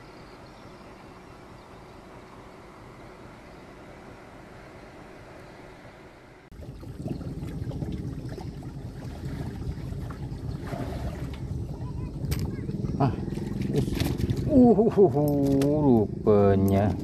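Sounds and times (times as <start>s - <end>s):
water lapping around boat: 6.5s - 16.9s.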